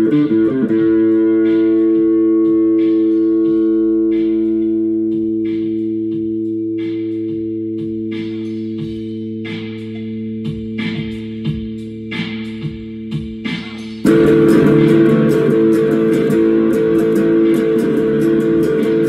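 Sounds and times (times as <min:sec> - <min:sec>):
electric guitar through amp: 0:00.0 - 0:09.5, 0:14.0 - 0:19.0
backing beat: 0:00.0 - 0:19.0.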